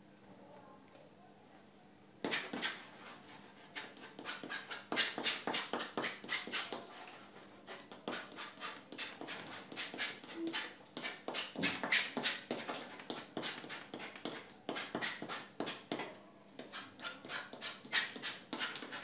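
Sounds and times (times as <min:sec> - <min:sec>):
palette knife scraping on canvas: 0:02.2 - 0:16.0, 0:16.6 - 0:19.0.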